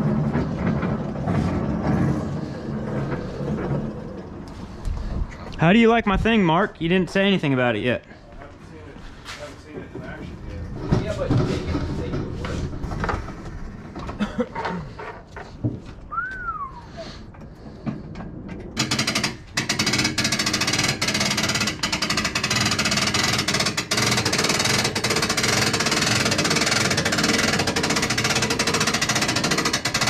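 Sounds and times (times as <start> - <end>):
short falling whistle tone: 16.1 - 17.0
rapid mechanical rattle: 18.7 - 30.0.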